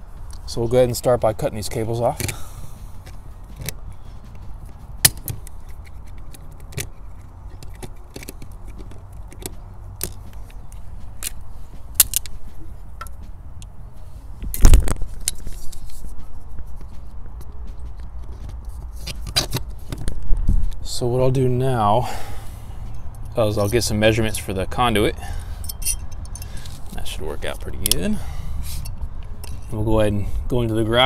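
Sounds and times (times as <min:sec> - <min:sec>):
fittings being handled: 0:14.5 - 0:20.1, 0:25.6 - 0:28.1, 0:28.7 - 0:29.8.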